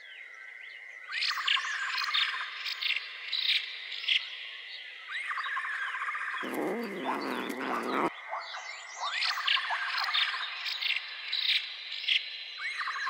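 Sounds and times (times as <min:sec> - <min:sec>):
bird calls: 0:06.4 - 0:08.1
deep wavering call: 0:06.4 - 0:08.1.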